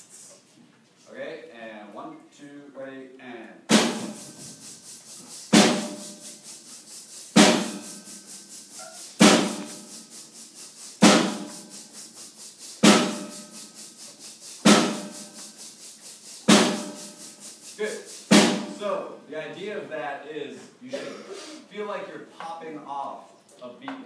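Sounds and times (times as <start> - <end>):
loud accented percussion hit: 3.7 - 4.3.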